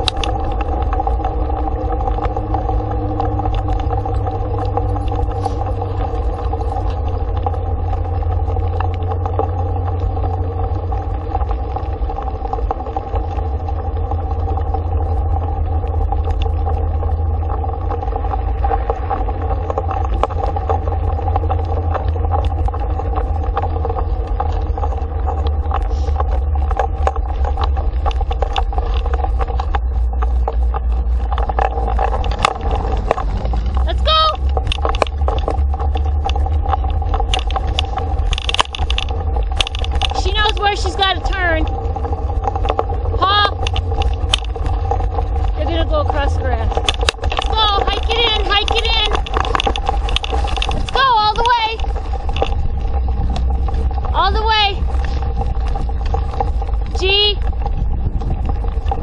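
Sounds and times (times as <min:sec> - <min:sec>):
grit ticking under wheels: 0:00.0 - 0:59.0
steady hum: 0:00.0 - 0:59.0
tyres rumbling on dirt road: 0:00.0 - 0:59.0
wind buffeting microphone: 0:00.0 - 0:59.0.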